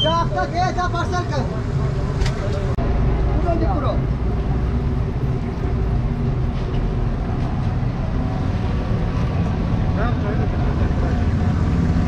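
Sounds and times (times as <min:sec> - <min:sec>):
street traffic rumble: 0:00.0 - 0:12.0.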